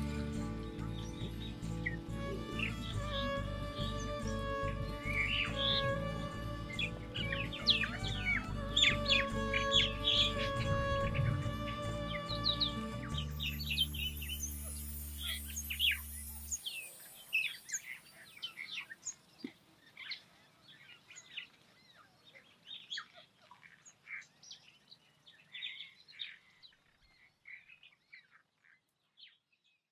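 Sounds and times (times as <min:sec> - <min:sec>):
background music: 0:00.0 - 0:17.4
birds chirping: 0:00.0 - 0:29.8.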